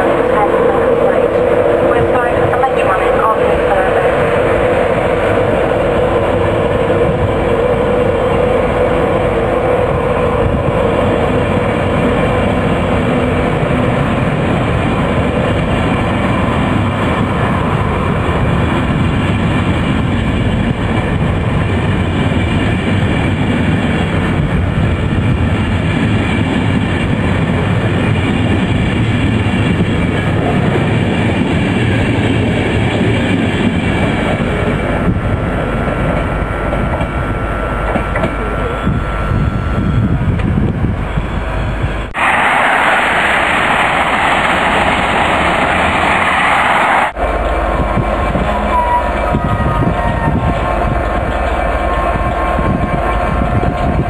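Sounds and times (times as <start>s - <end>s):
train wheels rumbling on rails: 0.0s - 54.0s
mid-pitched hum: 37.1s - 42.2s.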